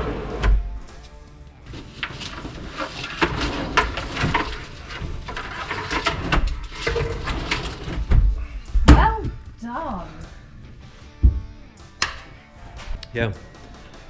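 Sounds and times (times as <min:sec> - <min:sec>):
wooden drawer knocking and scraping: 0:01.7 - 0:09.1.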